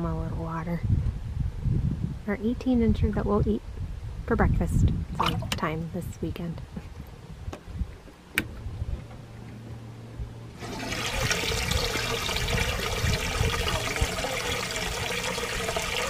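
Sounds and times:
water gushing into tank: 0:05.2 - 0:05.6, 0:10.6 - 0:16.0.

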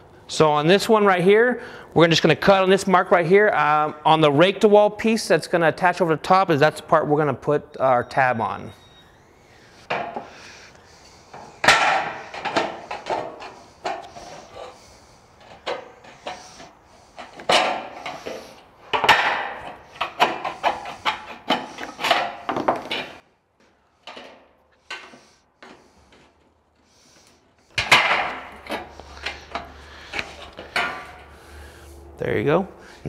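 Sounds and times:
thin metal rattling and scraping: 0:11.0 - 0:23.2.

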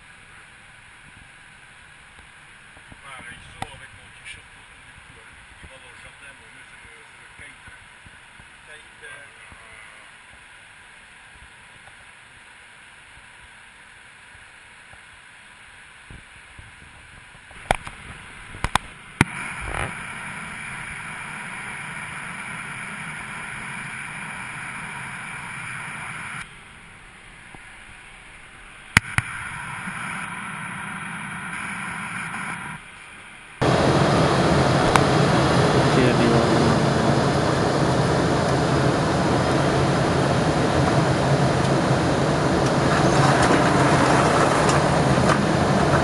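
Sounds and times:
jet cockpit rushing noise: 0:17.6 - 0:26.5, 0:29.0 - 0:32.9, 0:33.6 - 0:46.0.

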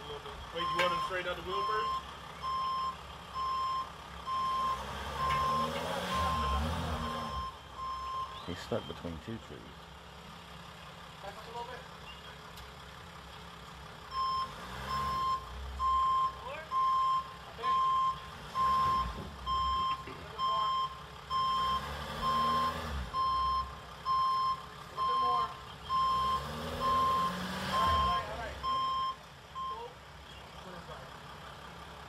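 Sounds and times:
reversing alarm beeping: 0:00.0 - 0:09.0, 0:14.1 - 0:29.9
van engine revving: 0:00.0 - 0:32.0.

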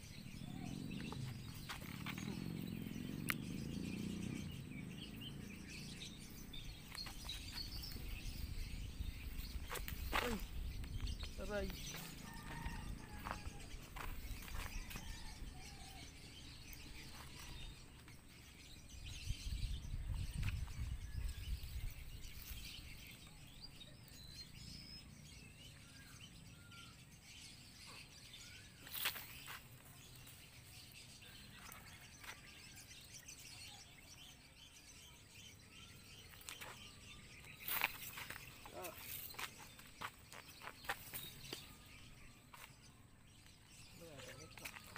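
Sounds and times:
faint bird chirps: 0:27.9 - 0:44.9.

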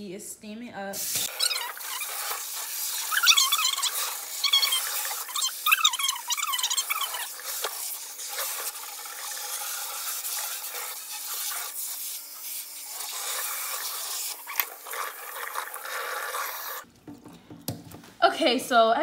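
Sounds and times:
sink sprayer running water: 0:01.0 - 0:16.9.

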